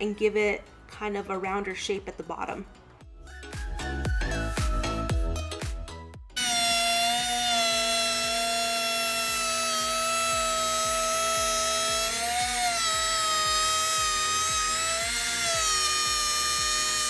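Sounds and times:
wood router motor whine: 0:06.4 - 0:17.0.

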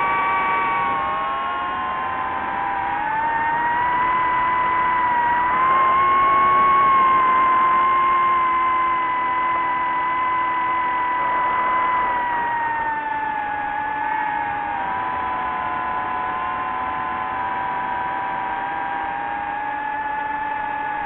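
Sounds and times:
drone motors whining: 0:00.0 - 0:21.0.

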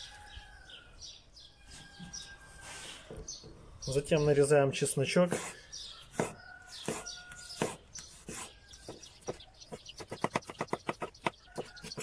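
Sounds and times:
knife chopping on wooden board: 0:06.1 - 0:07.0.

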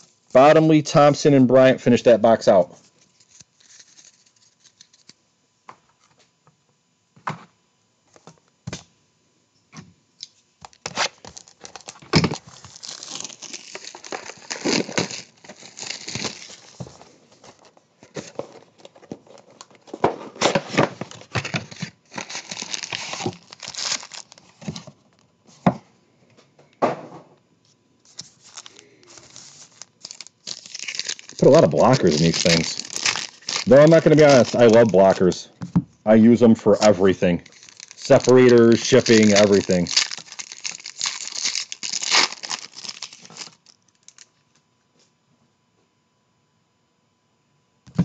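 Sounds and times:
plastic wrapping crinkling and tearing: 0:03.0 - 0:05.2, 0:10.6 - 0:25.3, 0:28.1 - 0:35.4, 0:36.7 - 0:44.3.

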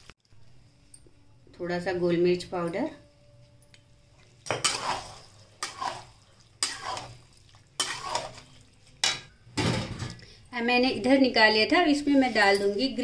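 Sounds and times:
metal spatula scraping pan: 0:04.4 - 0:09.3.

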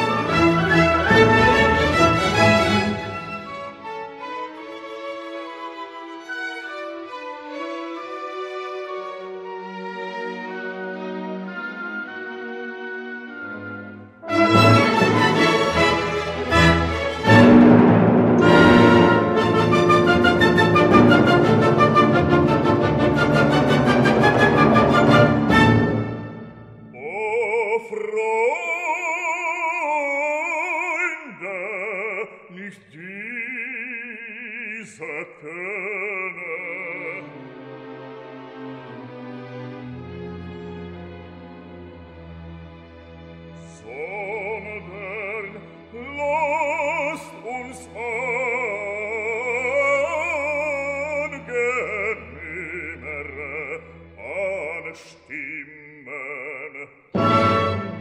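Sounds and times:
classical music: 0:00.0 - 0:58.0
operatic voice singing: 0:26.9 - 0:37.5, 0:43.6 - 0:58.0.

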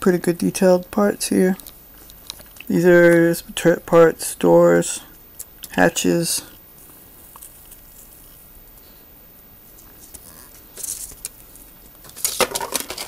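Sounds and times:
packaging rustling and crinkling: 0:10.8 - 0:13.0.

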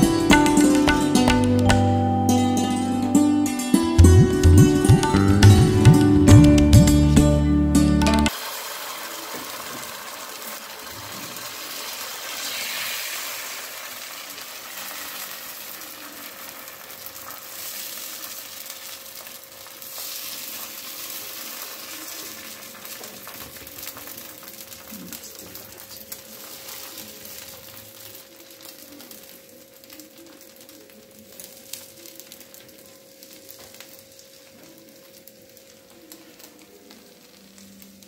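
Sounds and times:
batter sizzling on hot pan: 0:08.3 - 0:38.0.

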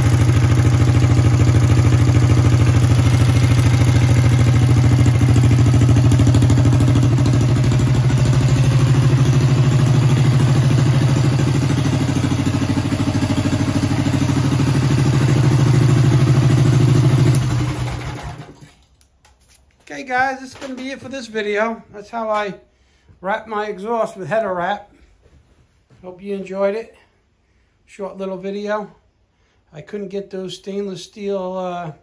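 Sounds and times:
small engine idling: 0:00.0 - 0:18.7.

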